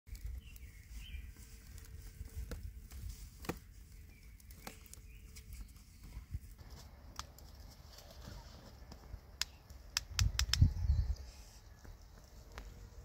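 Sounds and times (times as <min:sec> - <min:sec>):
sharp little clicks: 0:09.4 - 0:10.8
faint bird chirps: 0:10.4 - 0:13.0.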